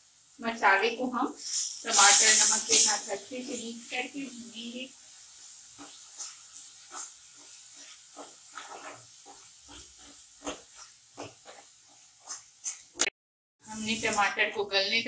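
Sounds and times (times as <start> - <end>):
food sizzling: 0.0 - 15.0
spatula scraping a pan: 1.4 - 4.1, 5.0 - 13.0.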